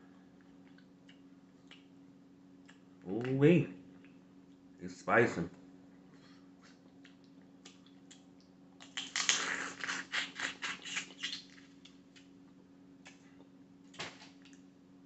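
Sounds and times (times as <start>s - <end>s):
faint steady hum: 0.0s - 15.0s
crawfish shells cracking: 8.8s - 12.0s.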